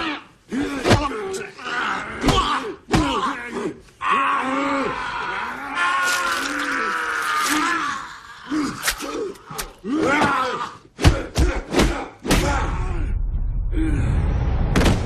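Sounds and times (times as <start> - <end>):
strangled groan: 0.0 - 10.9
men groaning and grunting: 0.0 - 13.1.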